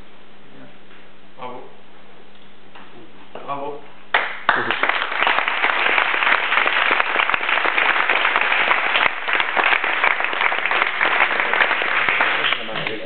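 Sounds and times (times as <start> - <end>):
crowd applauding: 4.1 - 13.0.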